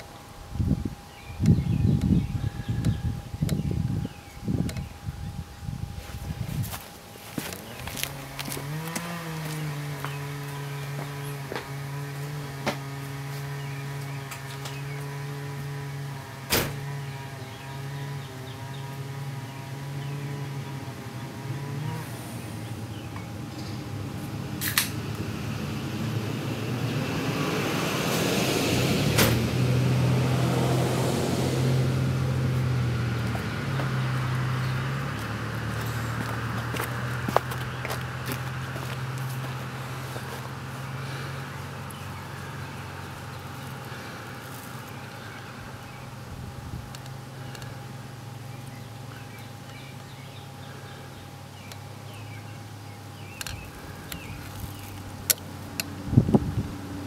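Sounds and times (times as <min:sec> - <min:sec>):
steady low hum: 0:00.0 - 0:27.8, 0:29.1 - 0:57.0
wind buffeting microphone: 0:00.4 - 0:08.6, 0:55.9 - 0:57.0.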